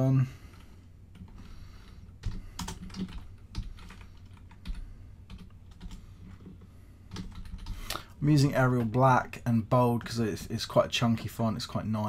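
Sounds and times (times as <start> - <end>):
typing on a computer keyboard: 0.5 - 7.8.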